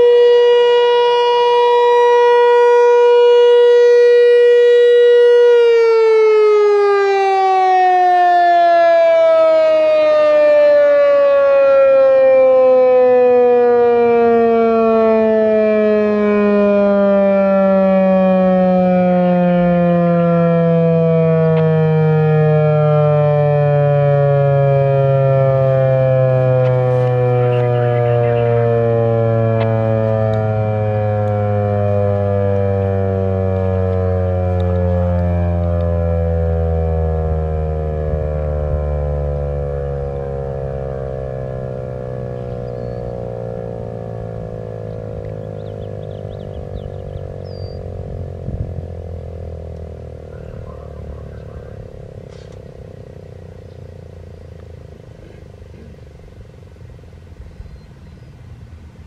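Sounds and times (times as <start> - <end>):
warning siren falling in pitch: 0.0 - 59.0
low rumble: 41.7 - 58.9.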